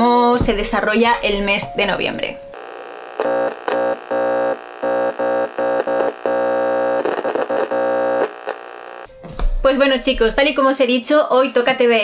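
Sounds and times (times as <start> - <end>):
stuttering buzzing synthesizer chord: 2.6 - 9.1.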